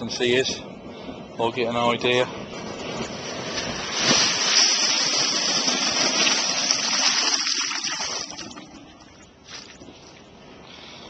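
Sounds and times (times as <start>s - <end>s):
slurry gushing into metal bucket: 3.9s - 8.6s.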